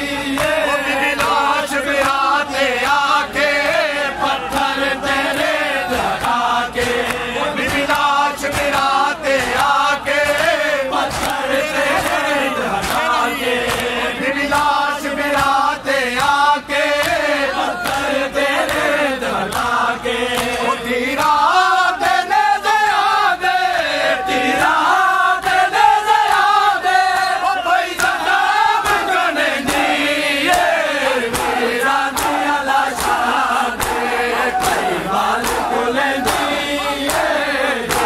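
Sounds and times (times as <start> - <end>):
crowd of men chanting: 0.0 - 38.0
men singing a lament: 0.0 - 38.0
chest-beating slaps: 12.8 - 18.9, 19.5 - 21.4, 28.8 - 38.0.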